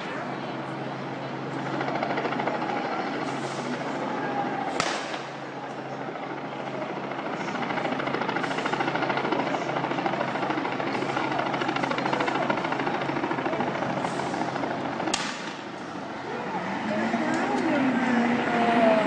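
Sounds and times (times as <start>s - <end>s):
crowd noise: 0.0s - 19.0s
rapidly pulsing hum: 0.0s - 19.0s.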